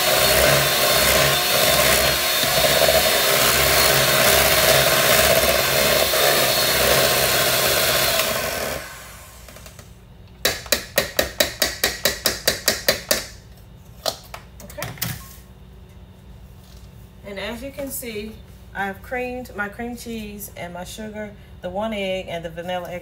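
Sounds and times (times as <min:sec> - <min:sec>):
electric hand mixer running: 0:00.0 - 0:09.7.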